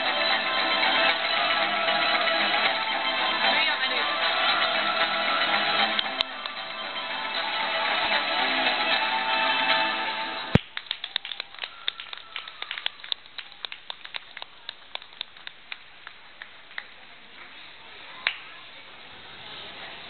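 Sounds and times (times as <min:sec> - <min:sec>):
music: 0:00.0 - 0:10.6
audience applause: 0:10.6 - 0:17.3.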